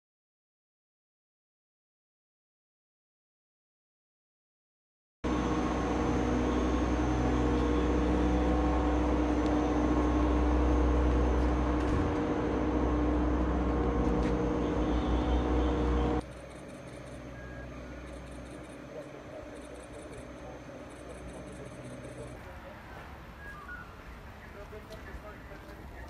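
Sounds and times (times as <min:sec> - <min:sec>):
engine running with deep rumble: 0:05.2 - 0:23.7.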